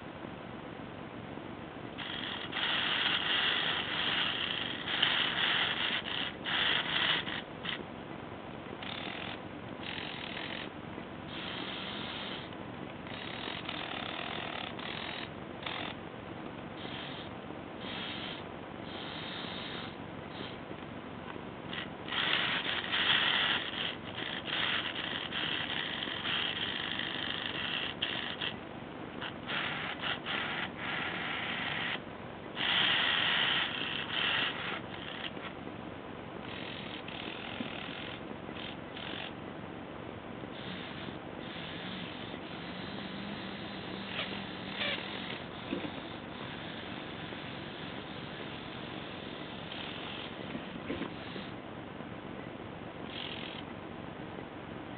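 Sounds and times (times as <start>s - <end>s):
small electric motor whirring: 8.8s - 10.7s, 13.1s - 16.0s.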